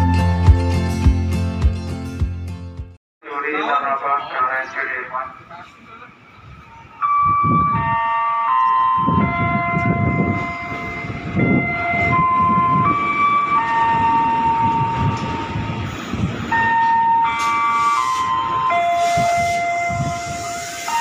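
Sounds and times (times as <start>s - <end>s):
train wheels rumbling on rails: 9.0s - 21.0s
train motor whining: 9.7s - 21.0s.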